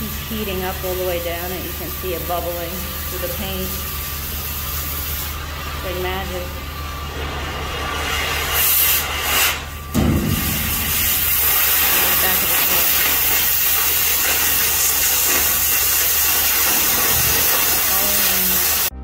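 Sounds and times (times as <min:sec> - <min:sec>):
cutting torch hissing: 0:00.0 - 0:19.0
low thump: 0:09.9 - 0:10.6.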